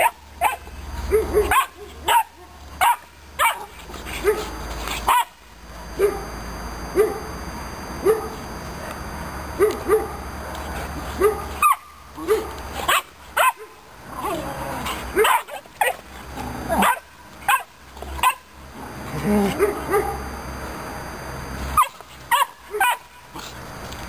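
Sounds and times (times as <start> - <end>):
puppies barking and yipping: 0.0 - 7.4, 9.6 - 13.8, 14.8 - 18.6, 19.5 - 20.3, 21.6 - 23.6.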